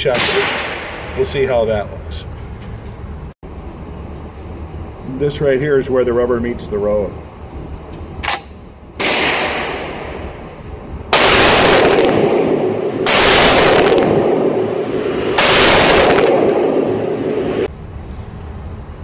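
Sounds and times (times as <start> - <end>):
quieter bang: 0.0 - 1.4, 9.0 - 10.6, 11.2 - 17.7
rifle shots ringing indoors: 0.1 - 1.2, 9.0 - 10.5, 11.1 - 17.7.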